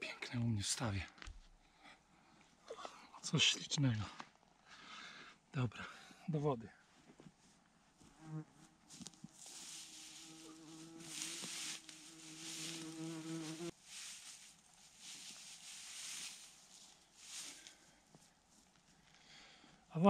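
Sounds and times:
insect buzzing: 0:08.1 - 0:13.8.

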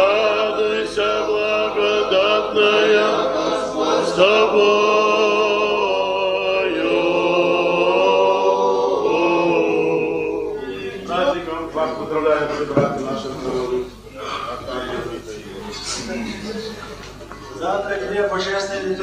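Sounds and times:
men singing church chant: 0:00.0 - 0:13.8.

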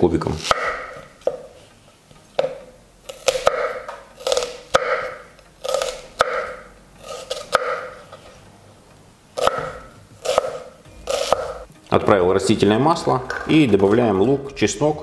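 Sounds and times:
knife crunching through onion: 0:03.1 - 0:08.0, 0:09.4 - 0:11.6.

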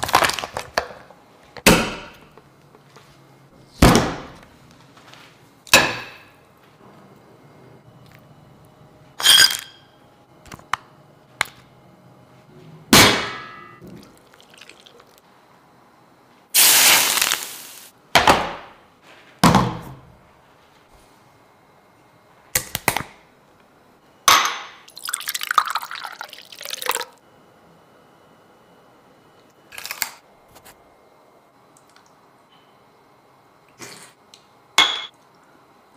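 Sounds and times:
hot oil sizzling: 0:16.6 - 0:17.9
tea pouring into glass mug: 0:24.9 - 0:27.2
dishes clinking and knocking: 0:34.8 - 0:35.2.

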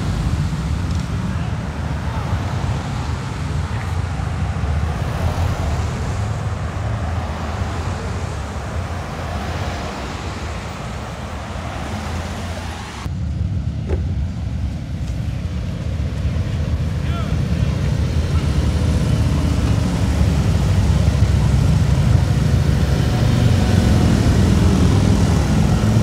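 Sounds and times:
cars driving slowly past: 0:00.0 - 0:26.0.

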